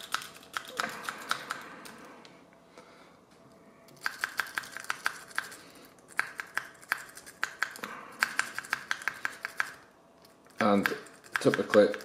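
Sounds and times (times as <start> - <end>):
rapid metallic lock picking clicks: 10.5 - 12.0.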